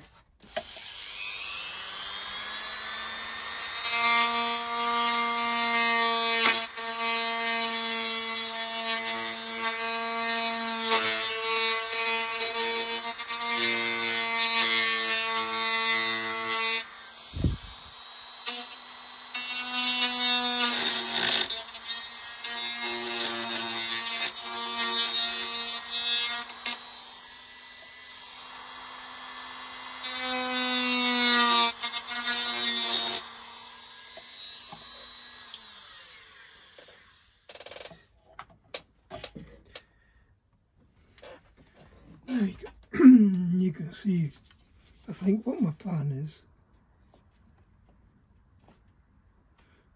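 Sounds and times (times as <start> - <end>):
rotary tool drilling into wood: 0.4 - 38.0.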